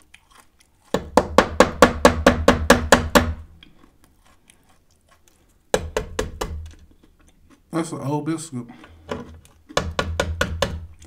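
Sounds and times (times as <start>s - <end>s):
biscuit knocking on tray: 9.7s - 10.9s.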